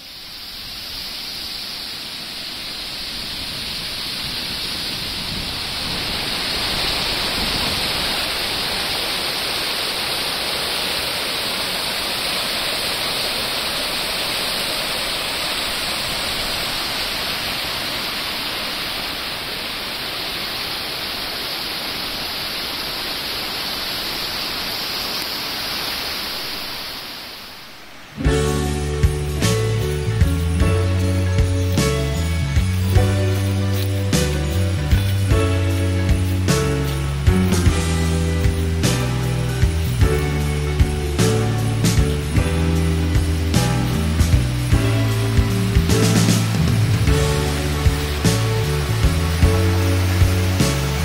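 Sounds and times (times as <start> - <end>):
water pouring over spillway: 0.0 - 27.4, 28.2 - 51.0.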